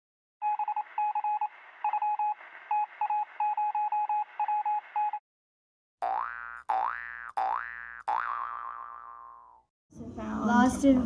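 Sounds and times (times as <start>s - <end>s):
morse code beeps: 0.4s - 5.2s
cartoon boing: 6.0s - 9.6s.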